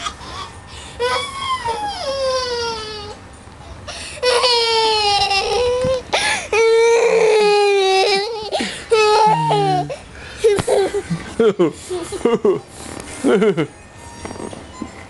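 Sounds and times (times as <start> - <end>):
young child crying: 0.0 - 3.2, 4.2 - 11.1.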